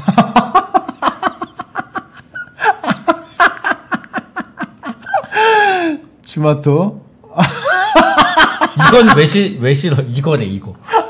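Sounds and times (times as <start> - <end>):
people laughing hard: 0.0 - 5.8, 7.3 - 9.4.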